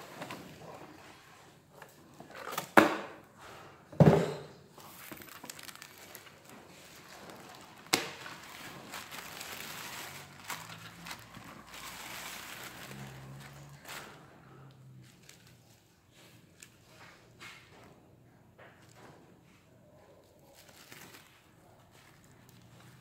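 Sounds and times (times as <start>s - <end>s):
plastic bag crinkling: 4.8s - 16.7s, 20.3s - 23.0s.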